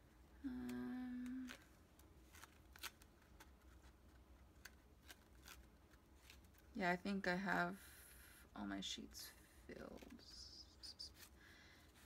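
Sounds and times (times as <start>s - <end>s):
woman humming: 0.4s - 1.7s.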